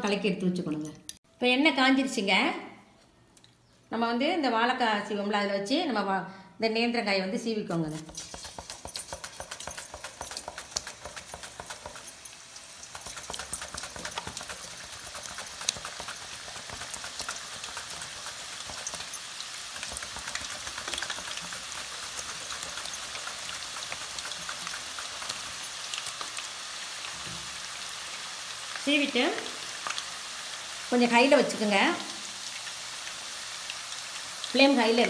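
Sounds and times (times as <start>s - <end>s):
oil sizzling and crackling: 7.9s - 35.0s.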